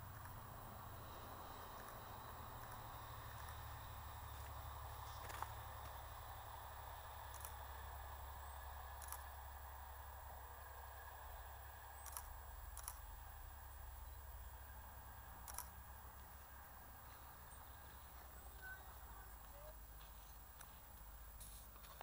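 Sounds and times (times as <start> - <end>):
distant diesel locomotive rumble: 0.0 - 22.0
sharp clicks: 7.2 - 7.6, 9.0 - 9.3, 12.0 - 13.1, 15.4 - 15.8.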